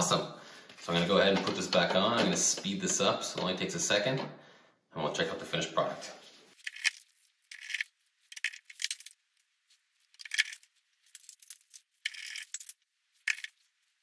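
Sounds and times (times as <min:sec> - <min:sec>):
screwdriver clicking and scraping screws: 0:06.6 - 0:09.1, 0:10.2 - 0:13.6.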